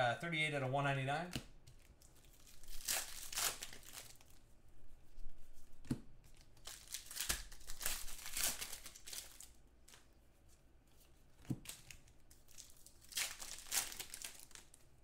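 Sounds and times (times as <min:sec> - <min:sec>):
plastic wrappers and cards crinkling: 0:01.3 - 0:04.5, 0:06.2 - 0:10.2, 0:11.0 - 0:15.0.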